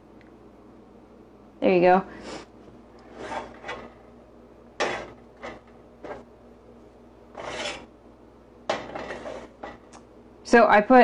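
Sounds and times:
utensil scraping a saucepan: 0:03.0 - 0:04.1, 0:04.8 - 0:06.3, 0:07.3 - 0:07.9, 0:08.7 - 0:09.9.

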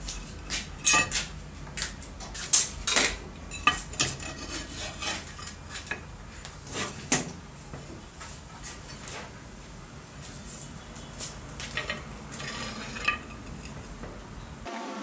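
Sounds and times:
metal clinks and knocks: 0:00.8 - 0:01.3, 0:02.5 - 0:06.0, 0:11.7 - 0:13.9.

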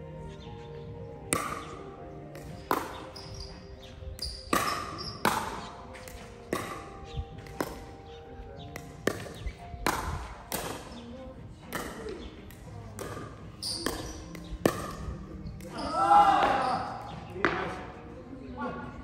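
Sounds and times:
paddle hitting ball: 0:01.3 - 0:03.5, 0:04.2 - 0:08.1, 0:08.7 - 0:11.1, 0:11.7 - 0:17.9.

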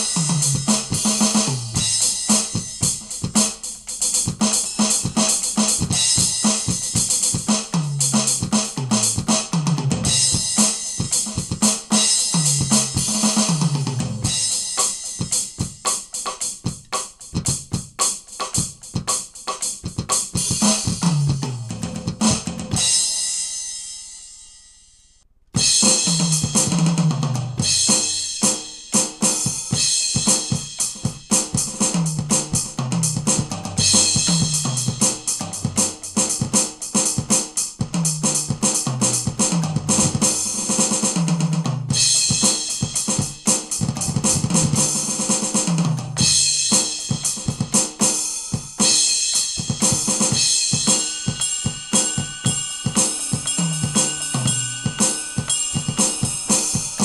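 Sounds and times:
electronic drum kit playing: 0:00.0 - 0:24.5, 0:25.6 - 0:57.0
descending tom fills: 0:48.8 - 0:57.0.

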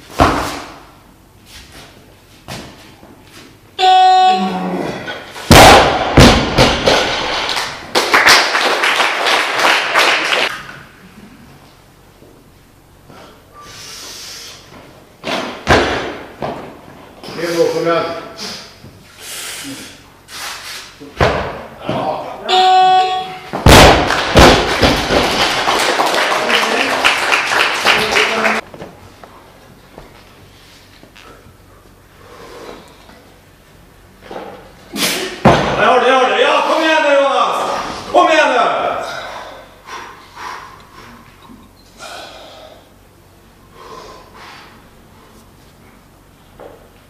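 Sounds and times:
barbell dropped with heavy thud: 0:05.5 - 0:07.5, 0:15.2 - 0:16.4, 0:23.5 - 0:25.4, 0:35.4 - 0:35.8
people applauding: 0:07.4 - 0:10.6, 0:24.0 - 0:28.6.

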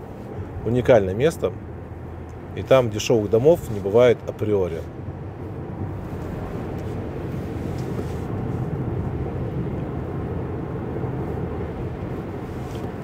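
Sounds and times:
car road and engine noise: 0:00.0 - 0:13.0.

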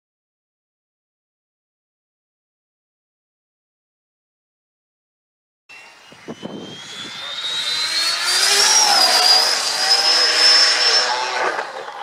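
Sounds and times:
vehicle speeding past: 0:06.5 - 0:12.0.

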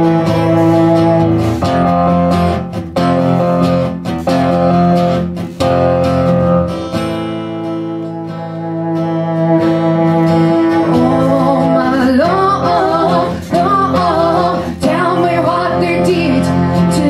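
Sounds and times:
bowed cello: 0:00.0 - 0:03.6, 0:06.6 - 0:17.0
acoustic guitar: 0:00.0 - 0:17.0
woman singing: 0:10.6 - 0:17.0.

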